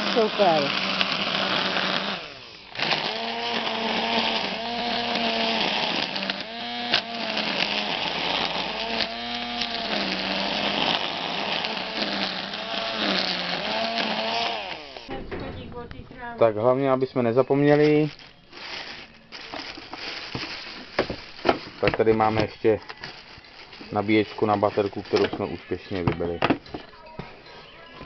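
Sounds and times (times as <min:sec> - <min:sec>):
string trimmer cutting grass: 0:00.0 - 0:15.1.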